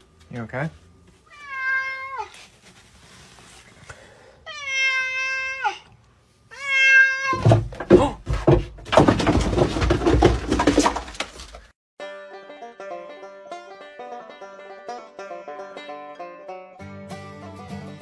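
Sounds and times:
cat meowing: 1.3 - 2.4, 4.5 - 5.9, 6.5 - 7.4.

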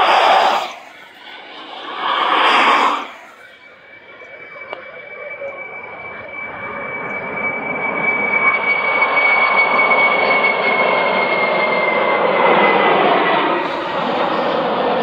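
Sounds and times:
high falling whine: 0.0 - 15.0
jet engines roaring: 0.0 - 15.0.

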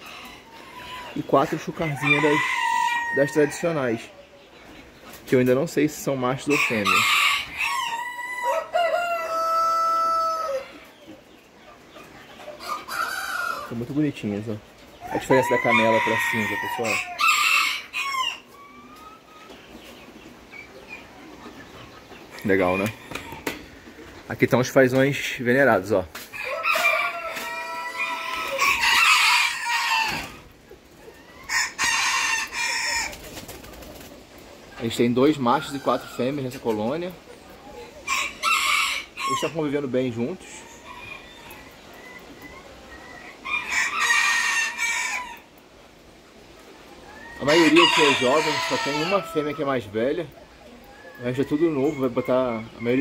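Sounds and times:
rooster crowing: 1.8 - 4.0, 6.5 - 10.7, 15.1 - 18.4, 26.4 - 30.4, 38.1 - 39.5, 47.2 - 49.6.

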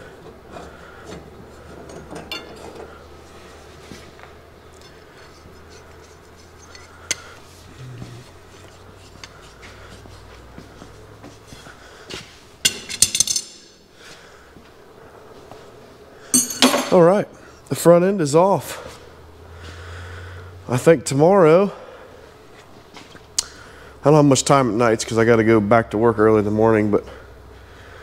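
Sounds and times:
metal tools clinking: 1.9 - 2.9, 4.8 - 7.4, 12.6 - 13.8, 16.3 - 17.1.

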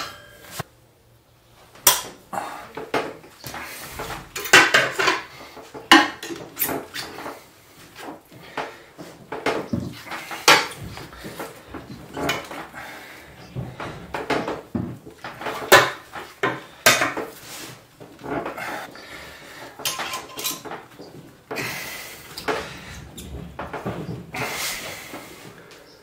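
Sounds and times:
steady hissing: 20.7 - 26.0.

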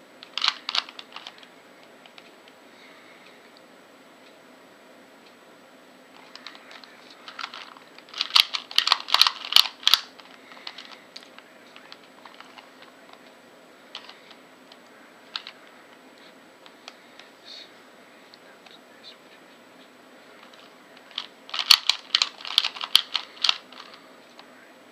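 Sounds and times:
puzzle cube plastic clicks: 0.2 - 1.5, 6.2 - 12.7, 13.9 - 14.4, 15.3 - 15.6, 20.4 - 24.5.

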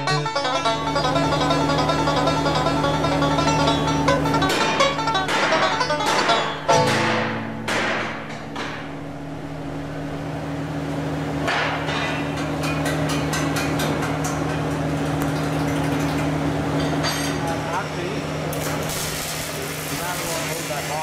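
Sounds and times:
low machine hum: 0.0 - 21.0
ringing strikes on metal: 4.5 - 9.1.

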